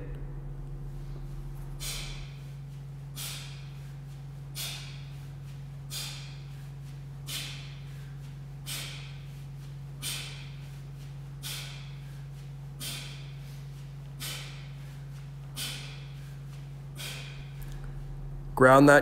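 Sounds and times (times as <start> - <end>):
steady low hum: 0.0 - 19.0
man's sharp hissing exhales: 1.8 - 2.4, 3.2 - 3.7, 4.6 - 5.0, 5.9 - 6.5, 7.2 - 7.8, 8.7 - 9.2, 10.0 - 10.5, 11.4 - 12.0, 12.8 - 13.4, 15.6 - 16.3, 17.0 - 17.4.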